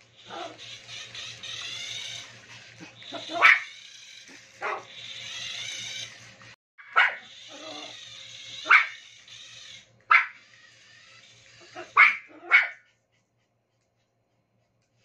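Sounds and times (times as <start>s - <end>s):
small dog barking: 3.1s - 3.7s, 4.6s - 4.9s, 6.8s - 7.8s, 8.6s - 9.0s, 10.1s - 10.4s, 11.6s - 12.8s.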